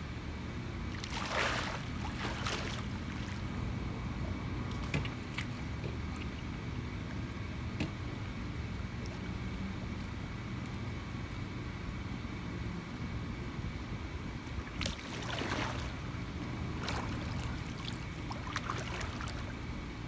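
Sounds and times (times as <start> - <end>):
low background rumble: 0.0 - 20.0
pool water splashing: 0.9 - 6.5, 14.6 - 20.0.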